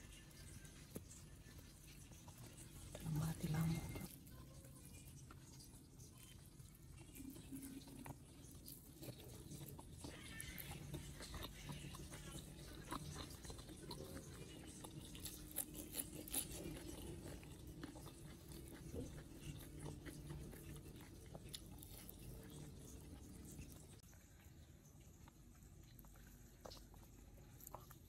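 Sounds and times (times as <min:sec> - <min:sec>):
faint chewing: 0:00.0 - 0:28.0
food crunches: 0:07.0 - 0:23.8.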